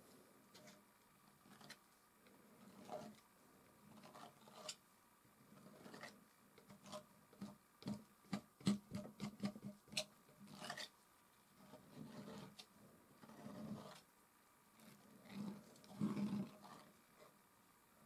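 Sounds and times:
palette knife scraping: 0.5 - 0.8, 1.4 - 1.8, 2.5 - 3.2, 3.9 - 4.8, 5.5 - 10.9, 11.6 - 14.1, 14.8 - 17.4.

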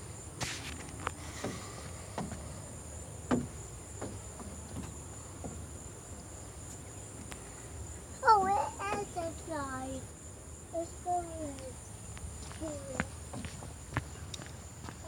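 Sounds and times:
insects chirping: 0.0 - 15.0
light knocks: 1.4 - 2.4, 3.2 - 5.7.

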